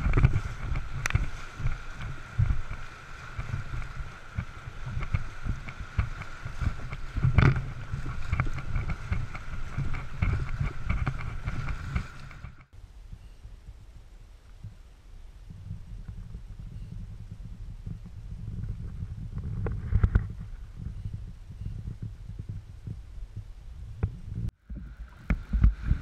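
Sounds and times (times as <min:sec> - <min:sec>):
rushing water: 0:00.0 - 0:12.7, 0:24.6 - 0:26.0
water splashing: 0:00.0 - 0:12.7, 0:24.6 - 0:26.0
waves thumping against hull: 0:00.0 - 0:12.7, 0:18.1 - 0:26.0.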